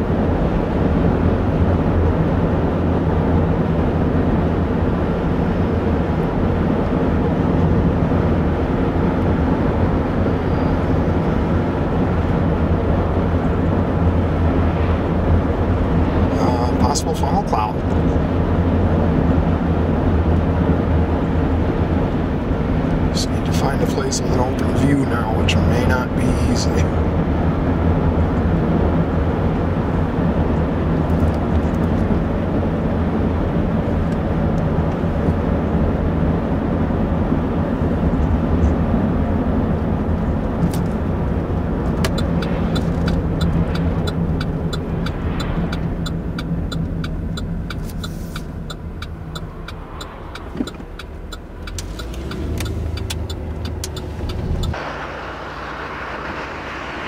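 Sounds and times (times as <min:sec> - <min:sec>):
car road and engine noise: 0:00.0 - 0:57.0
turn signal clicking: 0:41.8 - 0:54.8.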